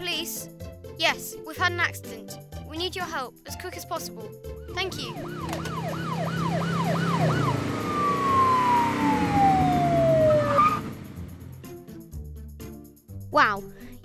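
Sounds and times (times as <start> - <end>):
police siren wailing: 4.8 - 11.4.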